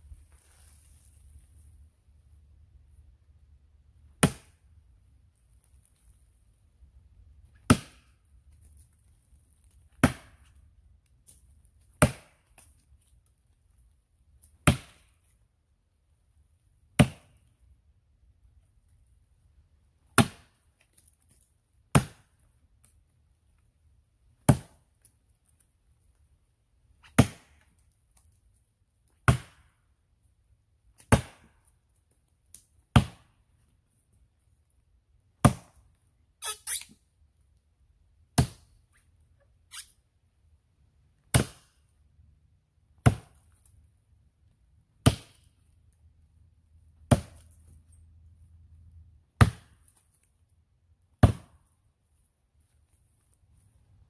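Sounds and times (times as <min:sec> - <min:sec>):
axe chopping into tree trunk: 0:04.1 - 0:04.6, 0:07.6 - 0:08.1, 0:09.9 - 0:10.4, 0:11.9 - 0:12.6, 0:14.5 - 0:15.2, 0:17.0 - 0:17.4, 0:20.0 - 0:20.6, 0:21.9 - 0:22.4, 0:24.4 - 0:24.8, 0:27.0 - 0:27.7, 0:29.2 - 0:29.8, 0:31.0 - 0:31.5, 0:32.9 - 0:33.4, 0:35.4 - 0:35.8, 0:38.4 - 0:38.7, 0:41.3 - 0:41.8, 0:43.0 - 0:43.6, 0:45.0 - 0:45.5, 0:47.0 - 0:47.7, 0:49.4 - 0:50.2, 0:51.2 - 0:51.6.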